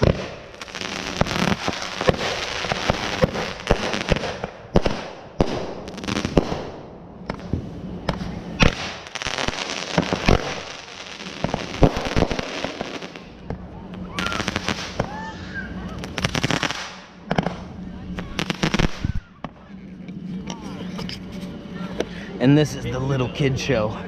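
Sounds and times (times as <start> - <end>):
fireworks bangs: 0.0 - 19.7
fireworks crackling: 0.0 - 23.8.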